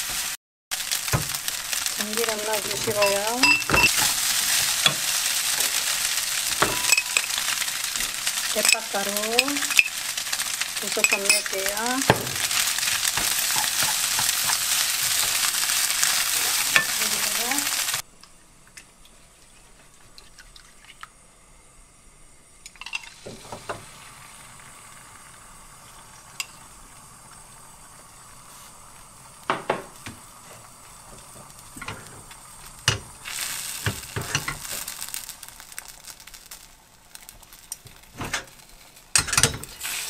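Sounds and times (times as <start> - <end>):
egg sizzling in a frying pan: 0.0 - 40.0
utensils clicking and tapping: 2.7 - 5.7, 8.5 - 9.9, 10.8 - 15.4.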